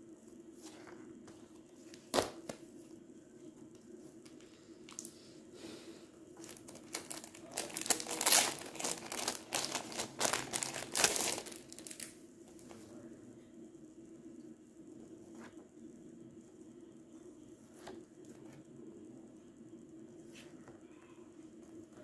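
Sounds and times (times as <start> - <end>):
plastic packaging crinkling: 6.4 - 12.2.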